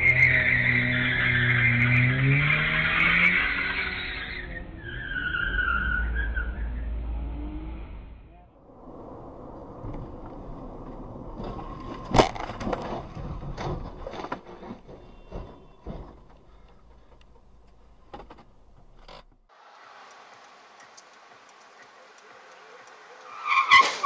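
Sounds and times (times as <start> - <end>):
road noise: 0.0 - 24.0
car crash impact: 11.3 - 16.3.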